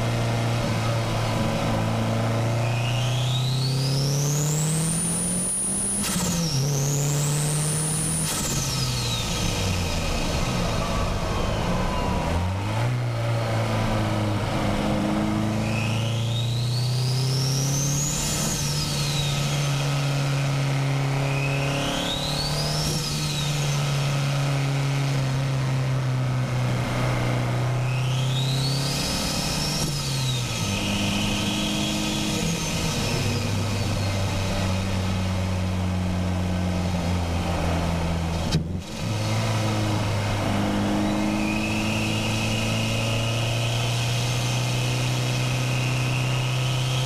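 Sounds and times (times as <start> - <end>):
car engine pulling hard: 0.0 - 47.0
turbo whistle: 2.6 - 4.2, 15.6 - 19.6, 27.8 - 34.2, 40.8 - 44.8.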